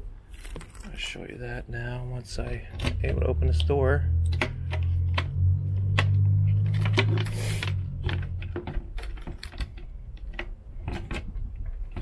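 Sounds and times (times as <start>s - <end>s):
low steady hum: 0.0s - 12.0s
key jiggling in a lock: 6.6s - 12.0s.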